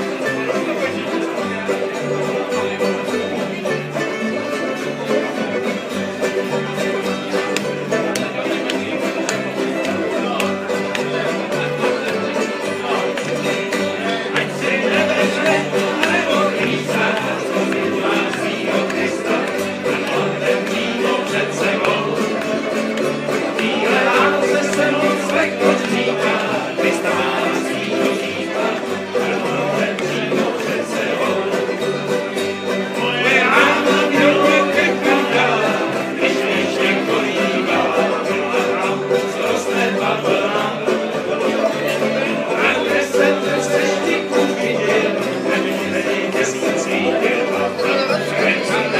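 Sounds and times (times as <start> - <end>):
banjo picked quickly: 0.0 - 48.9
strummed acoustic guitar: 0.0 - 48.9
walking bass line: 0.0 - 48.9.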